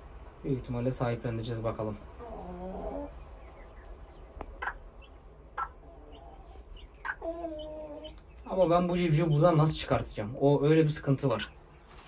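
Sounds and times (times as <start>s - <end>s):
hen calling: 2.1s - 10.1s.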